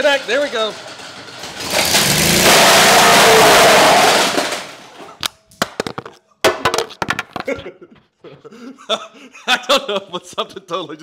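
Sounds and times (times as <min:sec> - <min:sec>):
mower engine running loudly: 0:00.2 - 0:04.8
drive shaft smashing plastic: 0:00.8 - 0:07.4.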